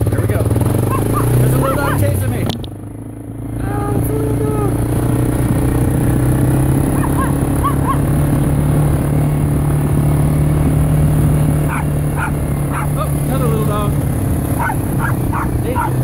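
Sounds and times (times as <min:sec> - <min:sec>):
atv engine humming: 0:00.0 - 0:16.0
small dogs yipping and barking: 0:00.8 - 0:02.1, 0:06.9 - 0:08.1, 0:11.6 - 0:13.0, 0:14.6 - 0:16.0.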